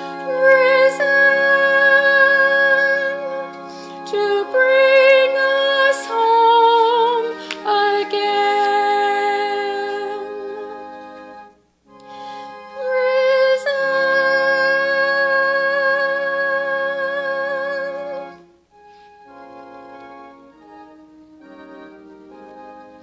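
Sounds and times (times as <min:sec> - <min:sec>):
woman singing with vibrato: 0:00.0 - 0:11.0, 0:12.7 - 0:18.4
organ chords: 0:00.0 - 0:23.0.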